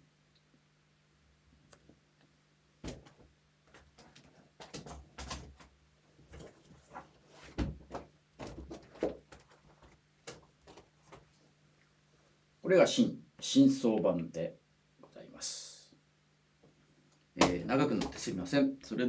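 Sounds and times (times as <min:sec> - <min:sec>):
books knocking and thumping: 0:02.8 - 0:11.3, 0:17.4 - 0:18.4.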